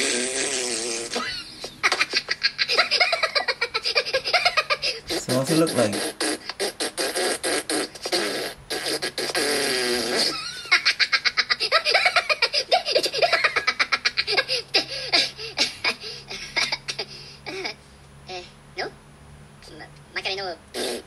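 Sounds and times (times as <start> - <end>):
cartoon characters giggling: 1.1 - 5.0, 10.1 - 14.8.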